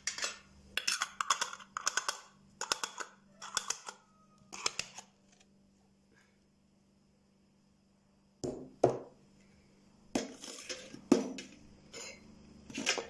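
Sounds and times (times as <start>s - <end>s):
glass jars clinking: 11.9s - 13.0s.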